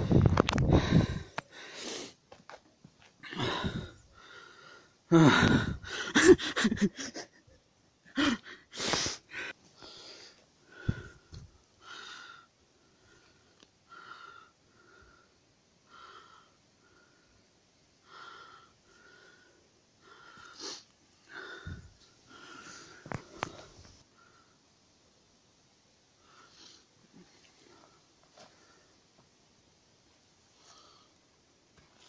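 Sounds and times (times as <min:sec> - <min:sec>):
person breathing with wheeze: 0:00.0 - 0:02.2, 0:03.2 - 0:07.3, 0:08.1 - 0:24.7.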